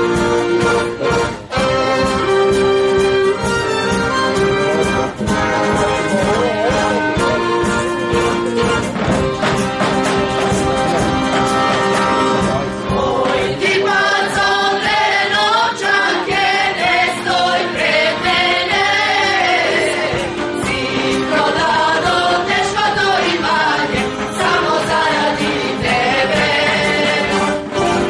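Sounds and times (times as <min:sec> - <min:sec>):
mixed choir singing folk song: 0:04.9 - 0:08.3, 0:10.2 - 0:28.0.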